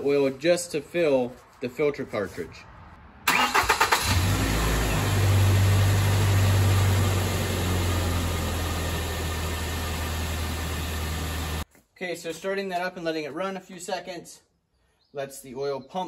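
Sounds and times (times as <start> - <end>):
car engine starting and idling: 3.2 - 11.6.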